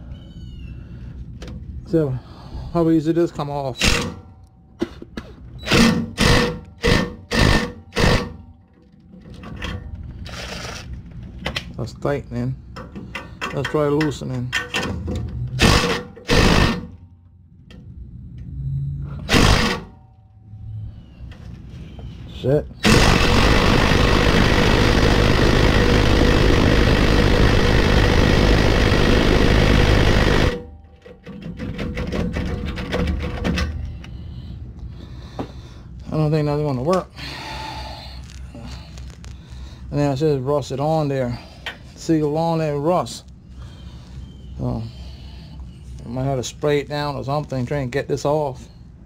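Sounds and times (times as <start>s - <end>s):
impact driver hammering on bolt: 5.7s - 8.4s, 19.3s - 19.9s
impact driver hammering bolt: 19.3s - 19.9s.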